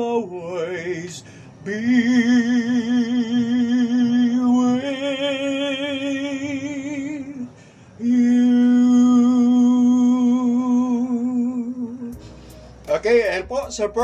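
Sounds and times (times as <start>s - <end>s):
man singing unaccompanied: 0.0s - 14.0s.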